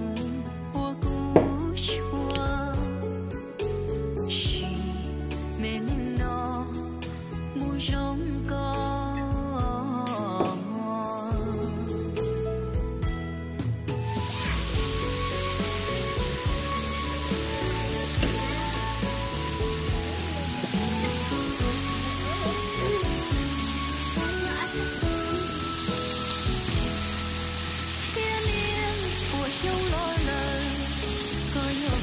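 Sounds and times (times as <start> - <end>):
background music with held notes: 0.0 - 32.0
steaks sizzling in oil: 14.0 - 32.0.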